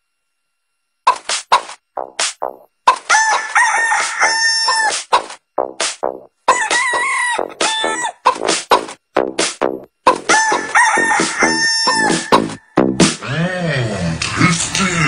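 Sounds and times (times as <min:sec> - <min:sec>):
chopped chicken clucks: 0:01.1 - 0:05.5, 0:06.4 - 0:09.0, 0:10.0 - 0:12.7
rooster crowing: 0:02.9 - 0:05.1, 0:06.4 - 0:08.4, 0:10.1 - 0:12.8
techno dance track: 0:04.9 - 0:13.2.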